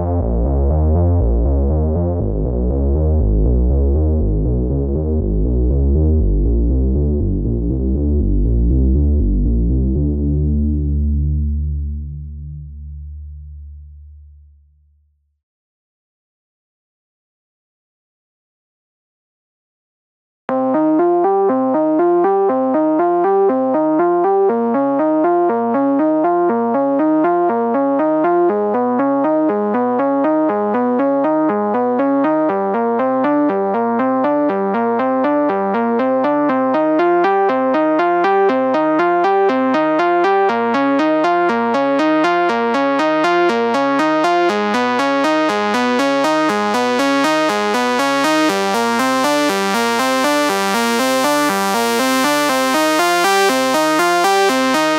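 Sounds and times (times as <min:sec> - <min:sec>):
sawtooth synth lead sequence: 0:35.0 - 0:54.9.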